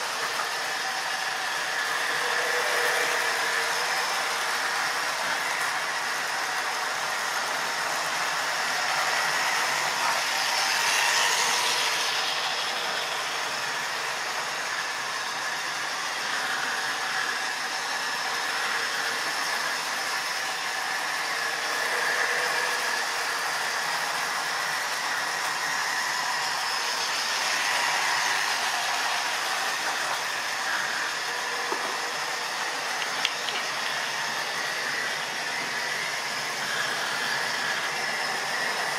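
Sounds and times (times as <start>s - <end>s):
model train whirring rattle: 7.4s - 14.1s, 32.8s - 34.3s.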